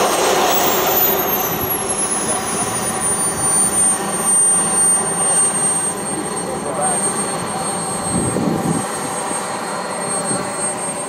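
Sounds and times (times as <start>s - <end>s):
loud rushing noise: 0.0s - 4.2s
model jet turbine whine: 0.0s - 11.0s.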